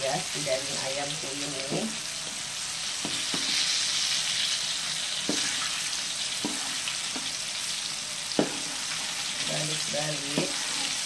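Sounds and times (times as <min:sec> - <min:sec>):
chicken deep-frying in oil: 0:00.0 - 0:11.0
spatula knocking and scraping wok: 0:03.0 - 0:03.7, 0:05.1 - 0:07.6, 0:08.3 - 0:11.0.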